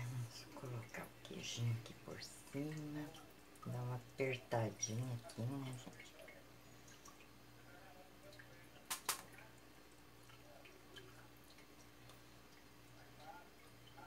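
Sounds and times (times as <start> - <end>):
faint steady hum: 0.0 - 14.0
sharp clicks: 8.9 - 9.3.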